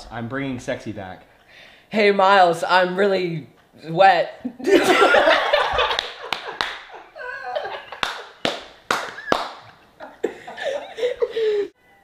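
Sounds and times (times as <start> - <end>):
group of people laughing: 4.5 - 8.4, 9.0 - 11.7
hand claps: 5.7 - 7.0, 7.9 - 9.8.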